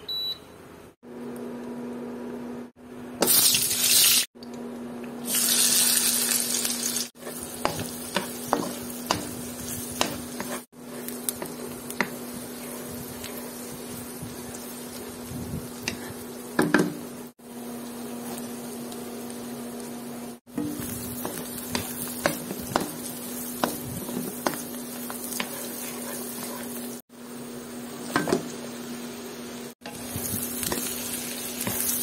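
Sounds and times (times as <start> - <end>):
onion sizzling in a pan: 3.2 - 4.3, 5.2 - 32.0
spatula tapping a pan: 7.6 - 10.6, 16.6 - 17.0, 20.5 - 25.6.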